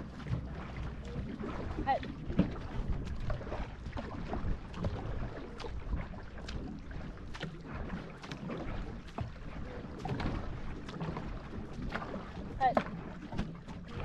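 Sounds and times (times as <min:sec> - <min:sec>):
wind rumble on microphone: 0:00.0 - 0:07.9
paddles splashing in water: 0:00.0 - 0:14.0.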